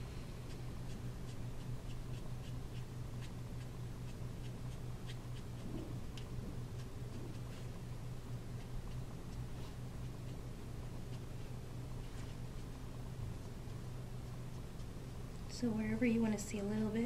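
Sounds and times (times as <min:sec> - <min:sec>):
steady low hum: 0:00.0 - 0:17.0
marker ticking on card: 0:00.5 - 0:07.7.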